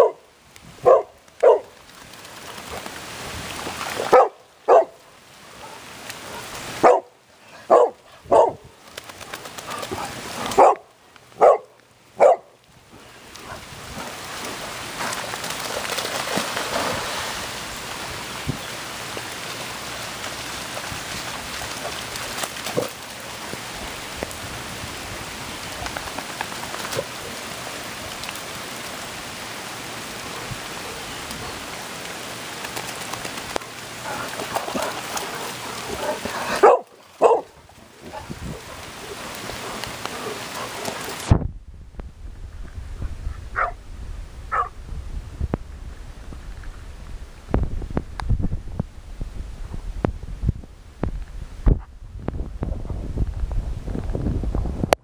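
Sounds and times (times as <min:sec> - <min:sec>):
dog barking: 0:00.0 - 0:00.2, 0:00.8 - 0:01.7, 0:04.1 - 0:05.0, 0:06.8 - 0:08.6, 0:10.6 - 0:12.5, 0:36.0 - 0:37.5, 0:43.6 - 0:43.8, 0:44.5 - 0:44.7
rain falling on lawn and puddles: 0:00.0 - 0:41.3.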